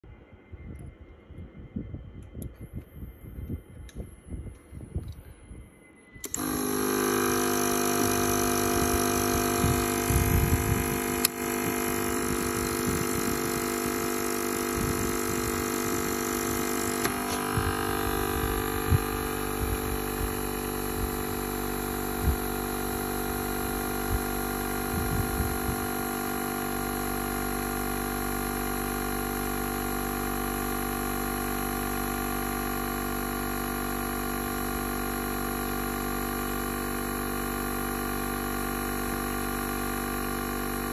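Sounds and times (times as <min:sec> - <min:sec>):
compressor motor humming: 0:06.2 - 0:40.9.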